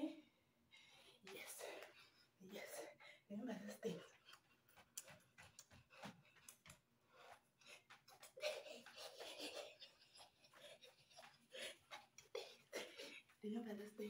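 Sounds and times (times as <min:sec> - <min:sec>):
dancing scuffs and taps: 0:03.8 - 0:13.5.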